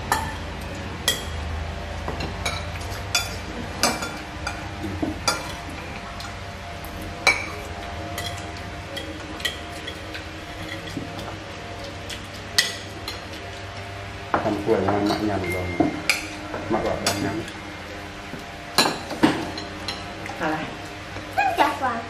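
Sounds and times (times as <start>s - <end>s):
cutlery clinking on plates: 2.2s - 6.4s, 7.2s - 11.3s, 14.4s - 17.6s, 18.8s - 20.1s.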